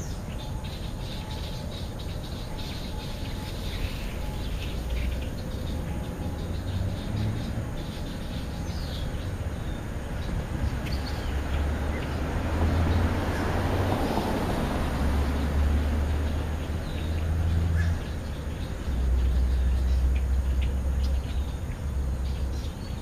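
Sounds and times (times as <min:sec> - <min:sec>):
small birds chirping: 0:00.0 - 0:23.0
vehicle passing: 0:00.0 - 0:23.0.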